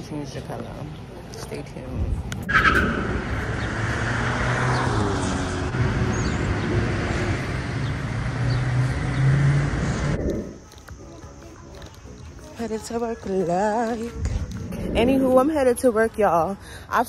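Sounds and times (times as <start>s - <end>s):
vehicles driving past: 0.0s - 17.0s
low engine hum: 3.1s - 11.6s.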